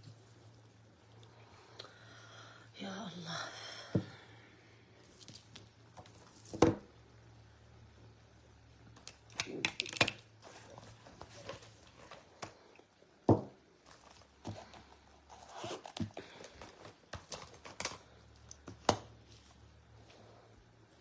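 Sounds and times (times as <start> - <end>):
objects knocking on table: 13.3 - 13.6
rustling of pouch: 13.8 - 18.3.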